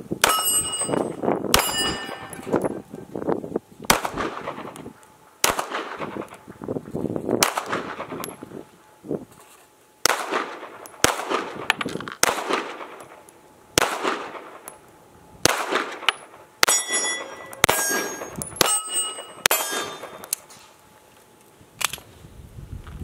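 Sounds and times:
pistol shots: 0:00.2 - 0:02.6, 0:03.9 - 0:04.8, 0:05.4 - 0:06.4, 0:07.4 - 0:08.4, 0:10.0 - 0:13.2, 0:13.8 - 0:14.8, 0:15.4 - 0:20.3
steel target plate ringing: 0:00.2 - 0:02.9, 0:16.1 - 0:20.4.

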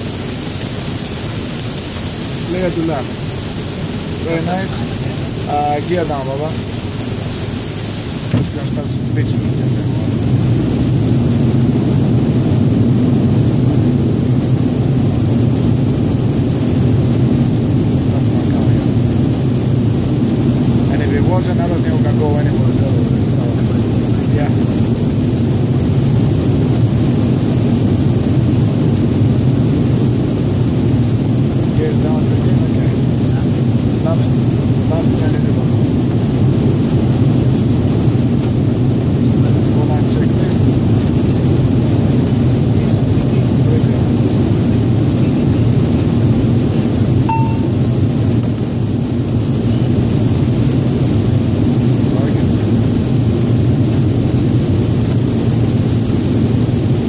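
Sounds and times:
airflow and engine noise: 0:00.0 - 0:57.0
faint high whine: 0:47.2 - 0:48.0
short beep: 0:47.3 - 0:47.8.

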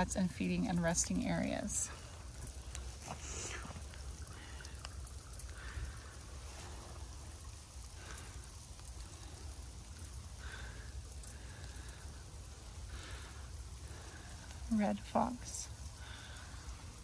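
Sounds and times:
light rain on leaves: 0:00.0 - 0:17.0
small water drips: 0:00.0 - 0:17.0
steady low rumble: 0:00.0 - 0:17.0.

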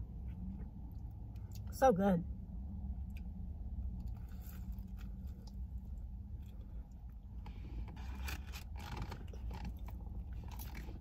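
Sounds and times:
low hum inside car: 0:00.0 - 0:11.0
food packaging rustling: 0:07.8 - 0:11.0.

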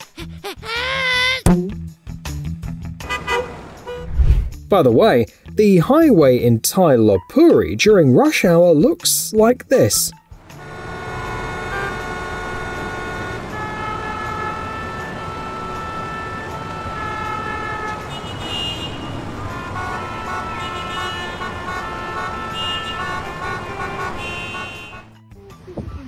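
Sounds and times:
road traffic rumble: 0:02.6 - 0:04.6, 0:10.3 - 0:26.0
car horns: 0:03.0 - 0:04.1, 0:10.5 - 0:25.2.

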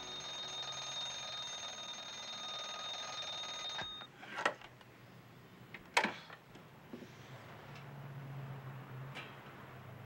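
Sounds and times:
ringing alarm: 0:00.0 - 0:04.1.

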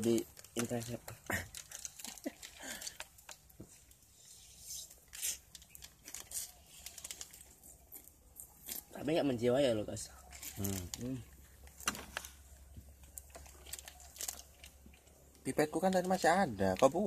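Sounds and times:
plastic drink bag crinkling: 0:00.0 - 0:04.1, 0:04.8 - 0:09.0, 0:10.2 - 0:17.0
sucking sips: 0:04.1 - 0:05.5.

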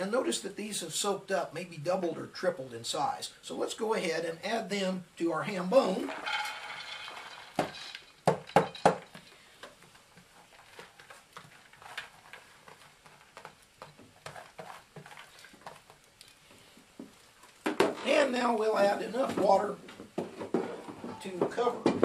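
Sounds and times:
beans pattering: 0:05.4 - 0:19.8
beans poured into a pot: 0:05.8 - 0:08.9.

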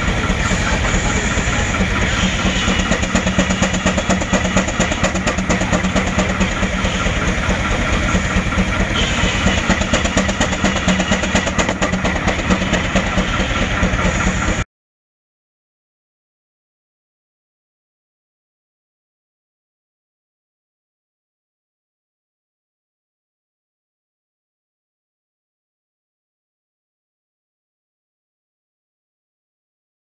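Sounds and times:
steam engine exhaust beat: 0:00.0 - 0:14.6.

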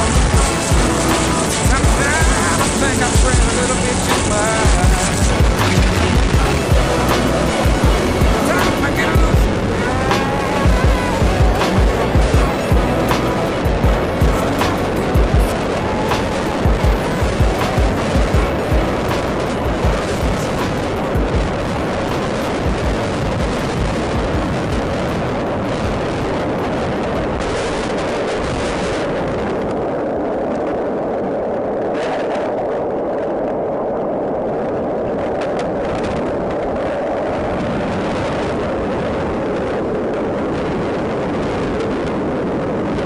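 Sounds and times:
low thumps: 0:00.0 - 0:25.9
loud roar of wind: 0:00.0 - 0:43.0.

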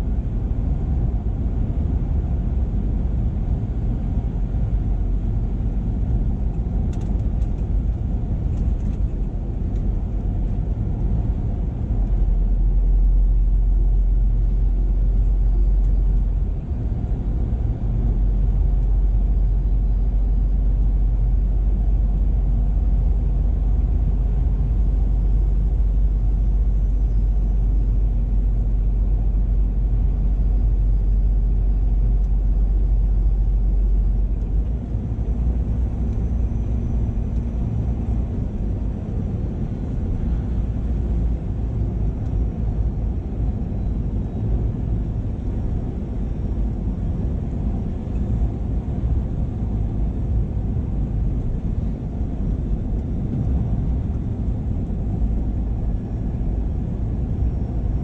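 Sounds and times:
road noise: 0:00.0 - 0:58.0
truck diesel engine rumble: 0:00.0 - 0:58.0.

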